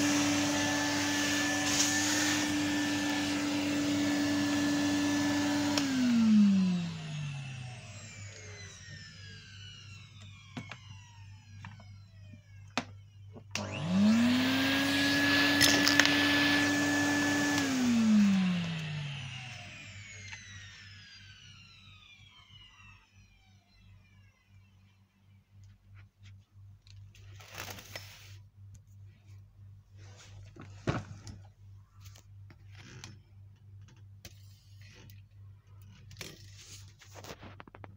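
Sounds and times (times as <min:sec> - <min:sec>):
vacuum cleaner motor: 0:00.0 - 0:24.8.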